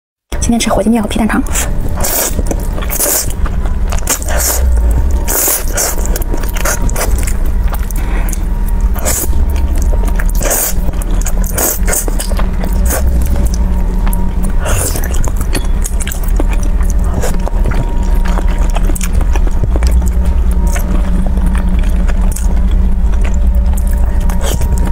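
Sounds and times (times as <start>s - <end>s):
steady low hum: 0.3s - 24.9s
slurping noodles: 1.5s - 9.3s, 10.2s - 13.6s
chewing: 1.5s - 24.9s.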